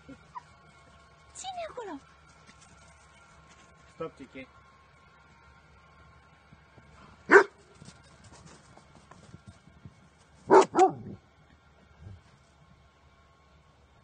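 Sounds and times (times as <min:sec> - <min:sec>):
dog barking: 0:07.3 - 0:07.6, 0:10.5 - 0:11.2.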